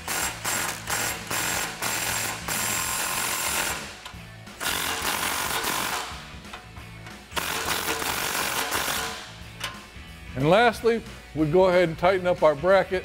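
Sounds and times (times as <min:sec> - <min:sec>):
impact wrench rattling: 0:00.0 - 0:09.8
background music: 0:00.0 - 0:13.0.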